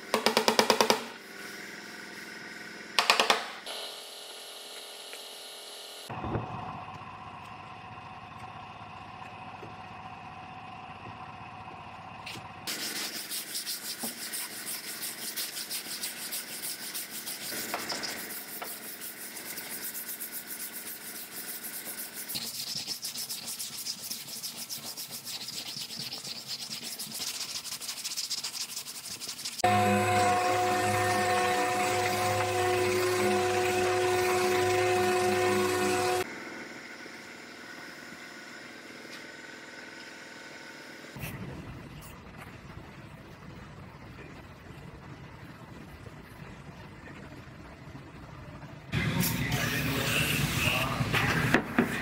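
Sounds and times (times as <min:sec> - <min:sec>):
sandpaper rasping strokes: 0:12.7 - 0:36.2.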